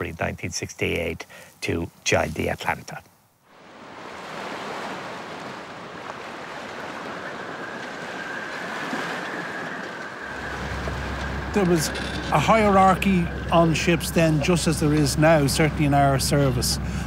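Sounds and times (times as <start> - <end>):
sea and wind rushing: 3.4 - 17.0.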